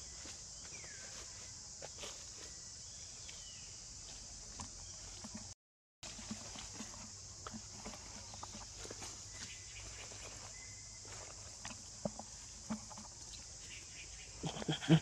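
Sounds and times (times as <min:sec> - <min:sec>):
monkeys scrambling on tree bark: 0:04.0 - 0:15.0.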